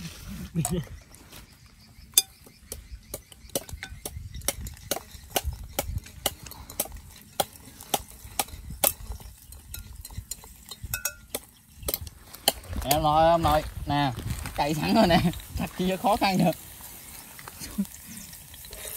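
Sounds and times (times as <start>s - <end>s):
wind rumble on microphone: 2.9s - 7.2s, 8.2s - 16.3s.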